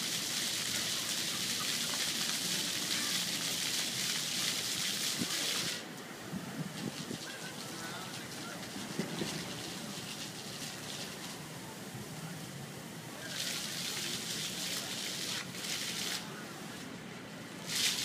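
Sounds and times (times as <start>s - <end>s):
fountain jets spraying water: 0.0s - 18.0s.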